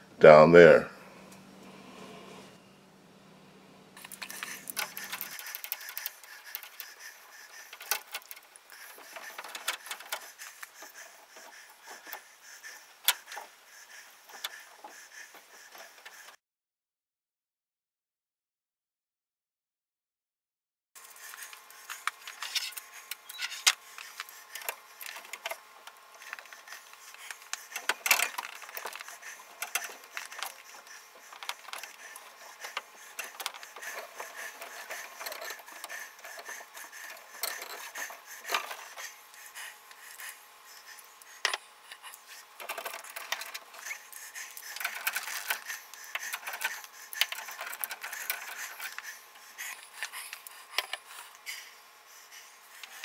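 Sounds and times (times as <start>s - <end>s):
plastic and metal clicks and scrapes: 4.0s - 10.8s, 21.2s - 39.0s, 42.6s - 49.1s.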